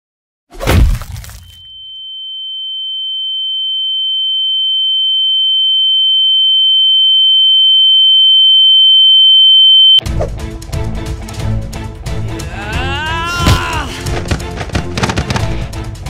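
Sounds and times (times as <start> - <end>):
high-pitched ringing tone: 1.5 - 10.0
fight music with hits: 13.3 - 16.0.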